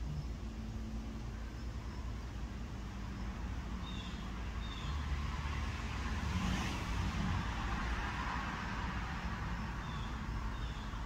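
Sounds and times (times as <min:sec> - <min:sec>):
vehicle passing: 0:03.0 - 0:11.0.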